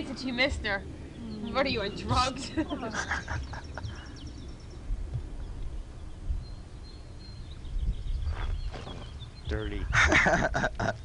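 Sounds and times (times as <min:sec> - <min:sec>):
wind rumble: 0:00.0 - 0:11.0
microphone handling noise: 0:07.8 - 0:09.3.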